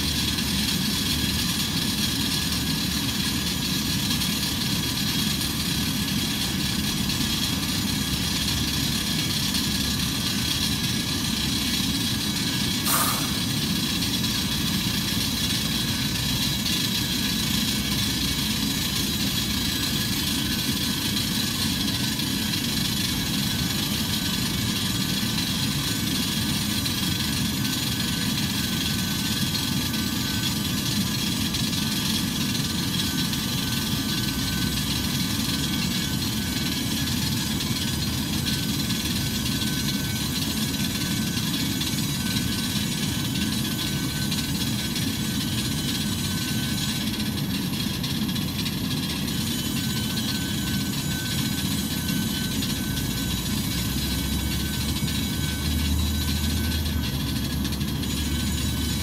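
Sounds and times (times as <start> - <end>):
jet turbine whine: 0.0 - 59.0.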